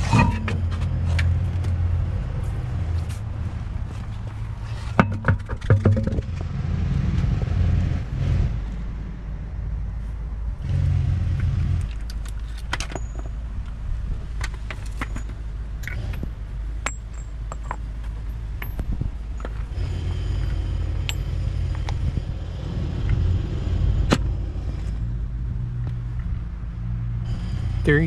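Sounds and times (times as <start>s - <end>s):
steady low rumble: 0.0s - 28.0s
metal socket clinking on asphalt: 11.8s - 19.8s, 20.4s - 22.1s.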